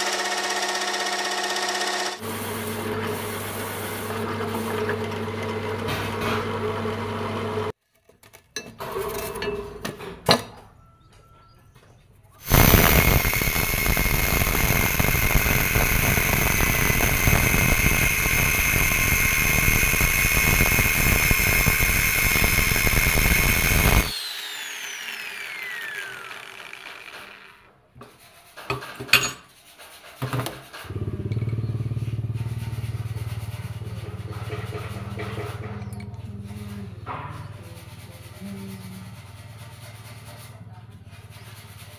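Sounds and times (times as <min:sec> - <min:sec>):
angle grinder cutting steel: 0:00.0 - 0:07.7, 0:12.4 - 0:27.8, 0:30.8 - 0:40.3
drill press humming: 0:00.0 - 0:07.8, 0:12.4 - 0:27.8.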